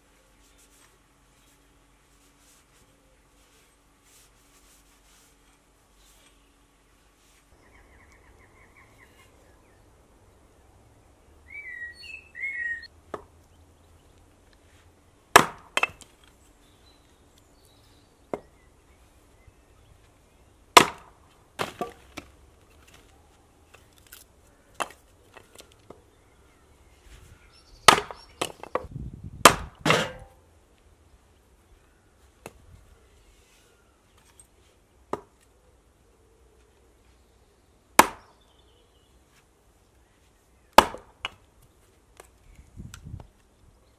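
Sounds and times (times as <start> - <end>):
axe chopping wood: 13.1 - 13.3, 15.3 - 16.1, 20.7 - 22.3, 27.9 - 30.4, 35.1 - 35.4, 38.0 - 38.4, 40.7 - 41.4.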